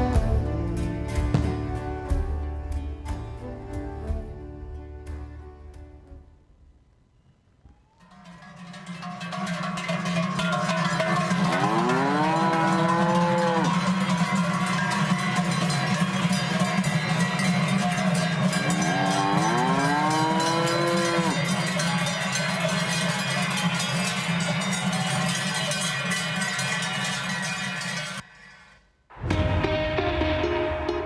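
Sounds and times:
cowbells clanging: 8.0 - 28.2
cow mooing: 11.4 - 13.8, 18.6 - 21.5.

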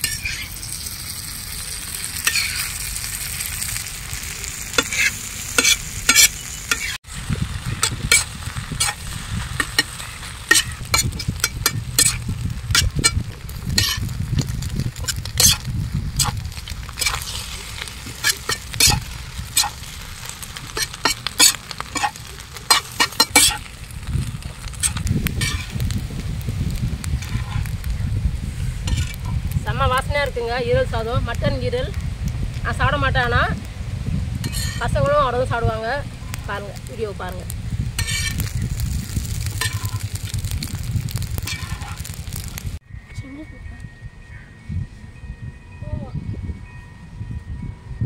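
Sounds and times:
metal spatula scraping on griddle: 0.0 - 0.8, 2.1 - 3.8, 4.8 - 26.0, 27.1 - 27.8, 28.5 - 29.4, 34.4 - 35.0, 38.0 - 42.6
food sizzling: 0.0 - 42.8.

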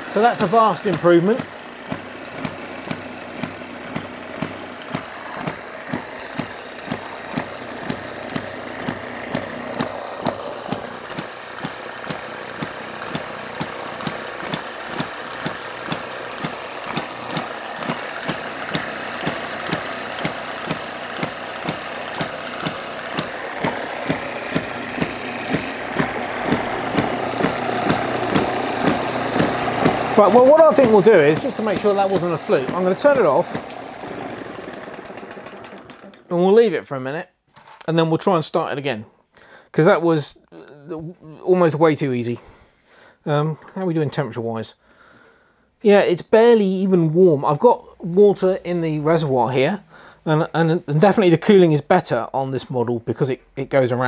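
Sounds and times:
model engine popping: 0.0 - 36.4.

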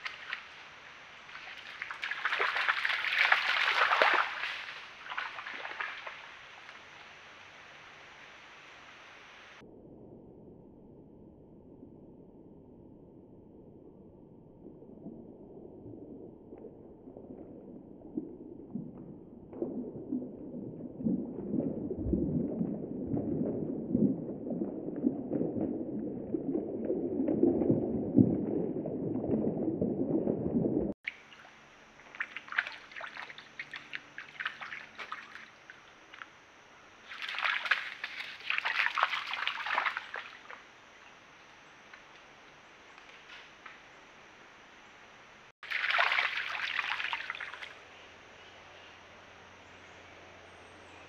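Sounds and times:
water sloshing under footsteps: 0.0 - 6.8, 30.2 - 36.3, 37.1 - 40.6, 45.6 - 47.7.

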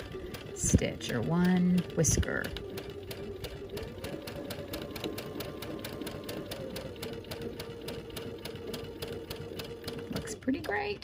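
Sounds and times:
sewing machine stitching: 0.0 - 11.0.

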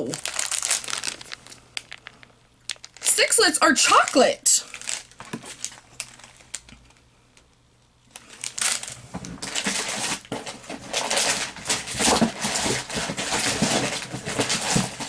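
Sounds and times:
snack wrappers rustling and crinkling: 0.0 - 7.0, 8.1 - 15.0.

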